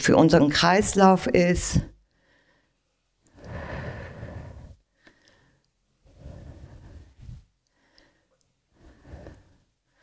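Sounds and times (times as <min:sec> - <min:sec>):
person breathing: 0:02.1 - 0:10.0.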